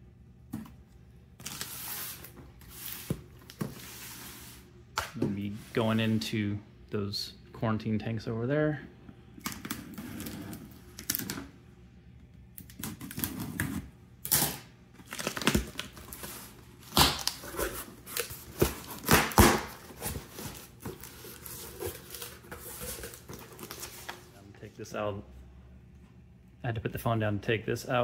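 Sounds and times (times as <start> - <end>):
cardboard scraping and rustling: 19.7 - 24.3.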